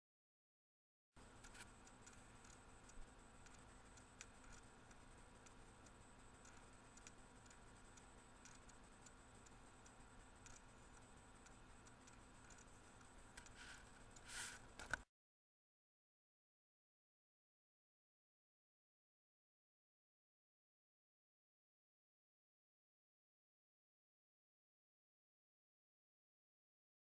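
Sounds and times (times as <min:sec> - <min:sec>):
faint irregular clicks: 0:01.2 - 0:15.1
low steady hum: 0:01.2 - 0:15.1
soft rustle: 0:13.4 - 0:14.7.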